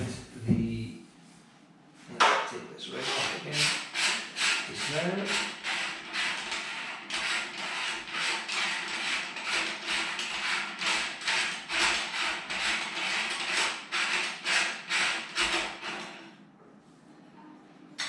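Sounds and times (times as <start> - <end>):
threads rasping while unscrewing: 3.0 - 16.3.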